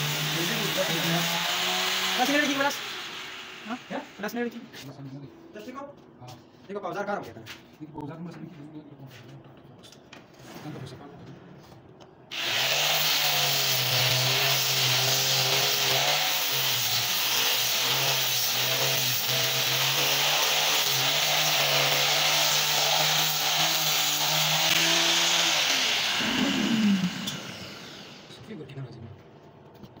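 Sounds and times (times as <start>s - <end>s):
angle grinder sanding wood: 0.0s - 4.2s, 12.4s - 28.3s.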